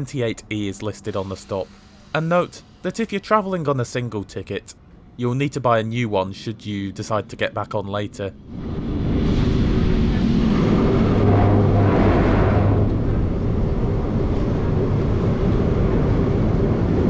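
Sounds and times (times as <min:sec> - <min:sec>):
low motor hum: 0:08.3 - 0:17.0
tram wheels rumbling on rails: 0:08.4 - 0:17.0.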